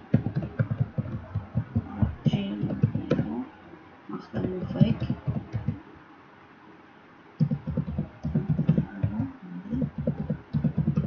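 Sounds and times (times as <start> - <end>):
typing on computer keyboard: 0.1 - 1.9, 4.4 - 5.8, 7.4 - 11.0.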